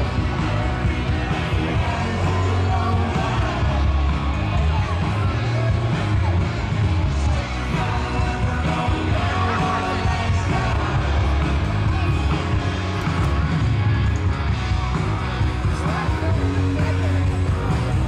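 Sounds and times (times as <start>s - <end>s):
rock music with singer: 0.0s - 18.0s.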